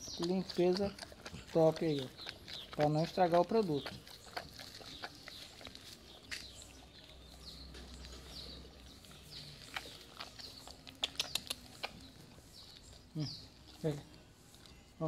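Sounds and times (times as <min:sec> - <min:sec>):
dog licking metal bowl: 0:00.0 - 0:13.0
tongue clicking against metal bowl: 0:09.7 - 0:12.1.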